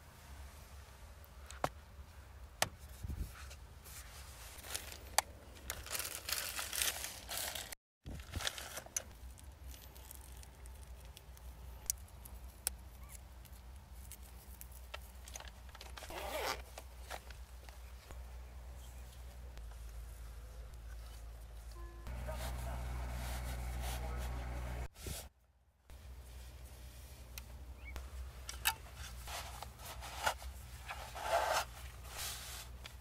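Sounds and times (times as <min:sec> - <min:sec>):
rustling and crinkling: 0:01.4 - 0:18.2, 0:18.8 - 0:25.3, 0:25.9 - 0:33.0
steady low hum: 0:17.8 - 0:24.9.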